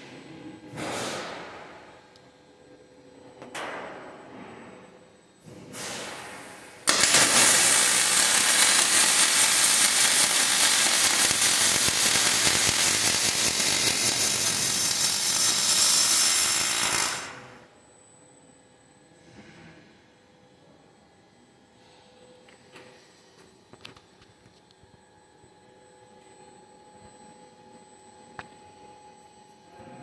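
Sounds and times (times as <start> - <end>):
welding torch hiss: 5.7 - 17.6
welding arc crackling: 6.8 - 17.6.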